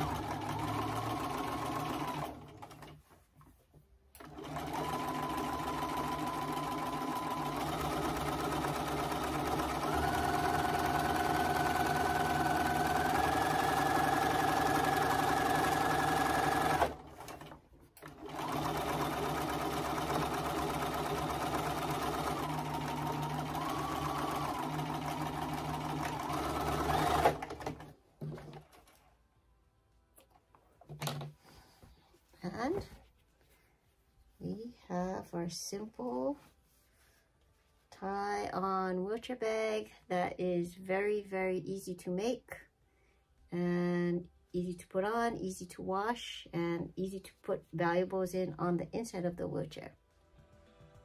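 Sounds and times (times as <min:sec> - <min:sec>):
sewing machine stitching: 0:00.0 - 0:03.0, 0:04.2 - 0:29.0.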